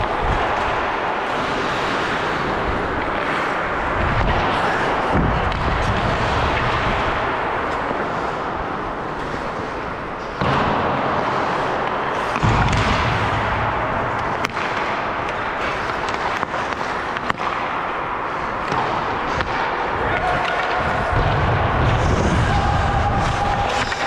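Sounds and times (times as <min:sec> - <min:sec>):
hockey sticks and puck cracking: 0:00.0 - 0:24.0.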